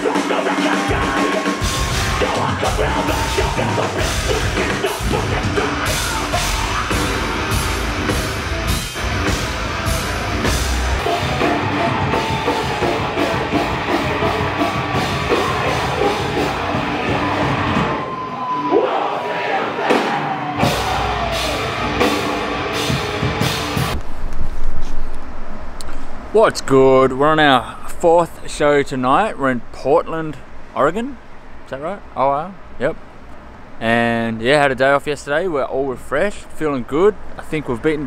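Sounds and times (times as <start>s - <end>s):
heavy metal music: 0.0s - 24.0s.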